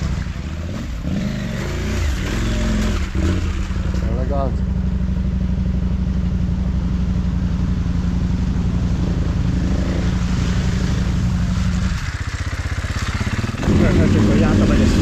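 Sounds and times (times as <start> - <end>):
motorcycle engine running: 0.0 - 15.0
rough trail noise: 8.0 - 15.0.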